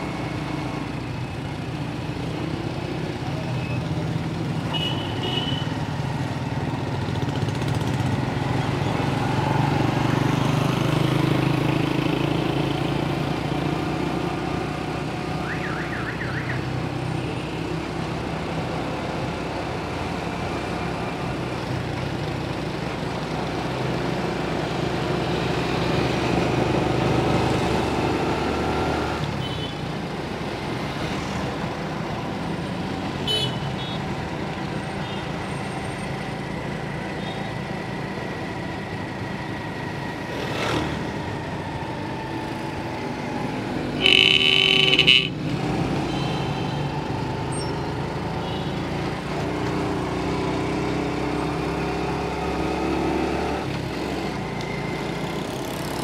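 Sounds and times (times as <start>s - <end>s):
road and wind noise: 0.0s - 56.0s
small motorcycle engine: 44.0s - 45.9s.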